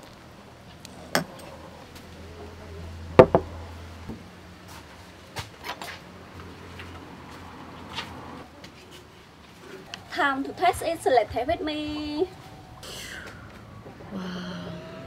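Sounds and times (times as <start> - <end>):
ceramic dishes knocking: 3.2 - 3.5.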